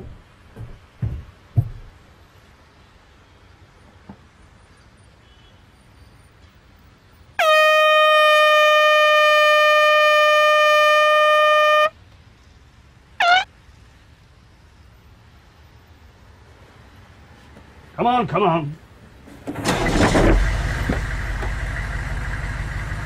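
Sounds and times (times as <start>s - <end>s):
air horn blasts: 7.4s - 12.0s.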